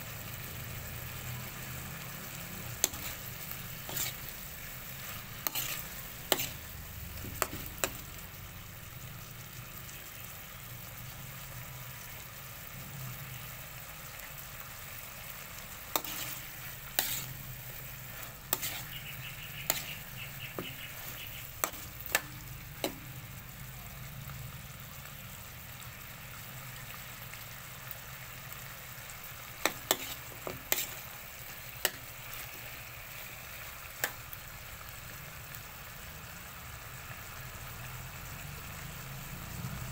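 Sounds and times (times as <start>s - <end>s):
food sizzling in a wok: 0.0s - 39.9s
metal spatula scraping pan: 2.6s - 6.7s, 7.3s - 8.1s, 15.9s - 23.2s, 29.6s - 31.1s.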